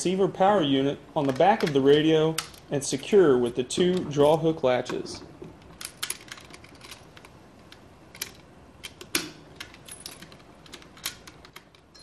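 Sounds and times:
metal latches clicking: 1.2s - 12.0s.

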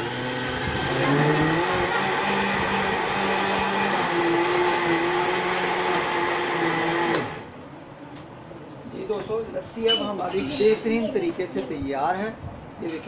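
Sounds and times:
electric blender running: 0.0s - 7.5s.

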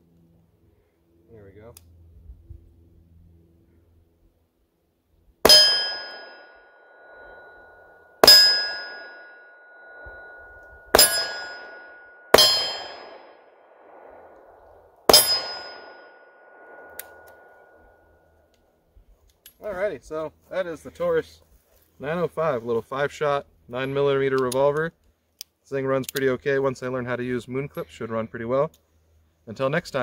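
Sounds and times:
steel target ringing: 5.4s - 18.2s
revolver shots echoing: 8.2s - 17.5s.

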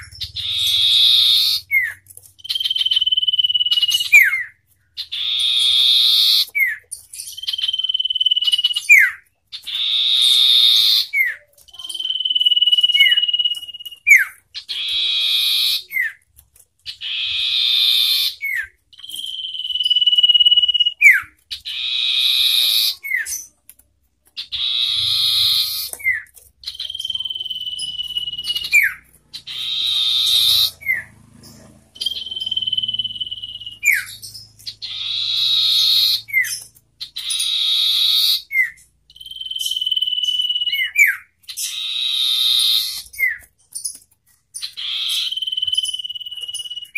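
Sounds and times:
birds calling: 0.0s - 46.9s.

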